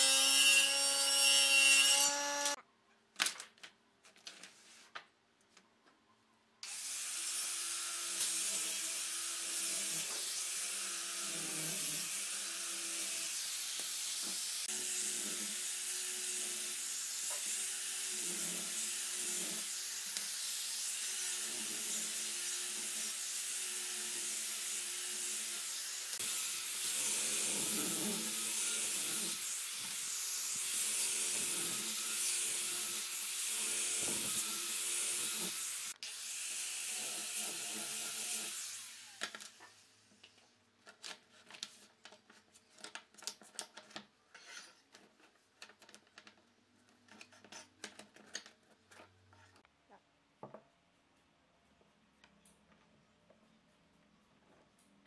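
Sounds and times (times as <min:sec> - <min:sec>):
angle grinder sanding wood: 0:08.2 - 0:39.2.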